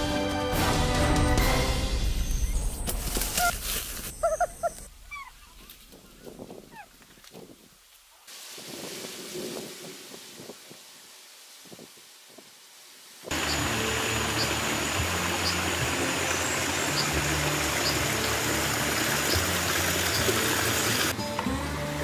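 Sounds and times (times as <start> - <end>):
background music: 0.0 - 3.0, 13.5 - 22.0
stream rushing over rocks: 8.3 - 21.2.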